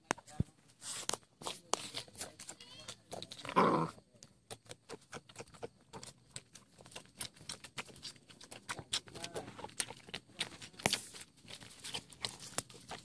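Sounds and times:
puppies suckling: 0:04.4 - 0:13.0.

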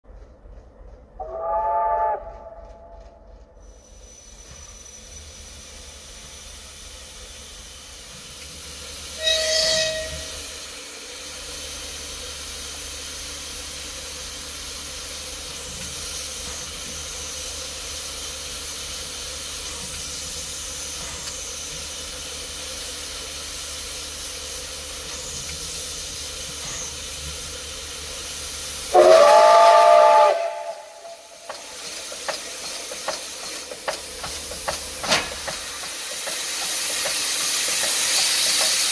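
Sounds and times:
steam whistle blast: 0:01.2 - 0:03.0, 0:09.2 - 0:10.6, 0:28.9 - 0:31.3
steam locomotive hissing: 0:01.2 - 0:38.9.

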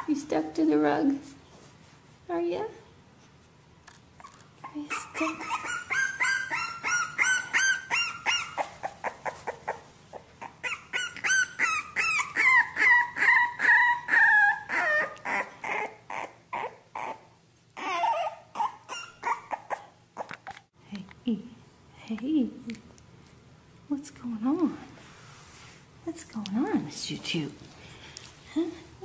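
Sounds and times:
puppy whimpering and squealing: 0:04.2 - 0:20.7.

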